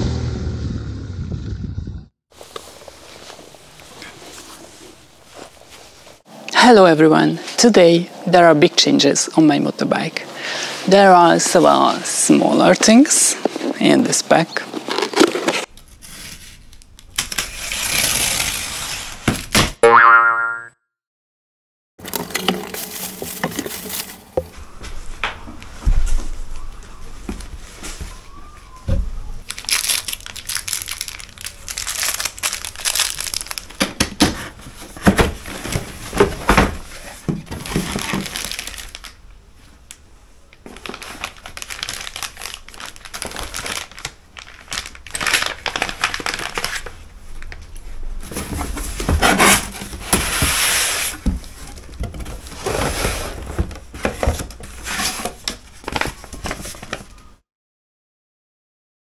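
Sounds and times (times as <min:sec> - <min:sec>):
plastic bags crinkling: 0:22.1 - 0:24.3, 0:29.4 - 0:33.9, 0:37.5 - 0:39.2, 0:40.6 - 0:47.6.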